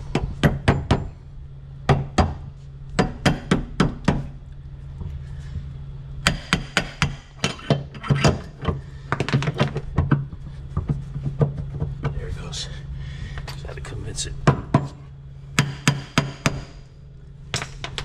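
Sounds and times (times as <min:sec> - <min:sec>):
steady low hum: 0:00.0 - 0:18.0
sharp metal knocks: 0:00.1 - 0:01.1, 0:06.2 - 0:08.5, 0:15.6 - 0:16.8.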